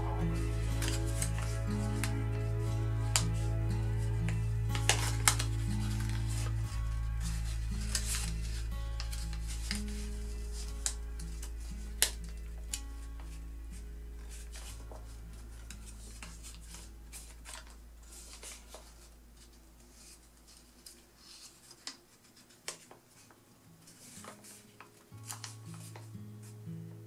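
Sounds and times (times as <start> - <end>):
paper folding rustles and crackles: 0.0 - 26.7
quiet background music: 0.0 - 27.0.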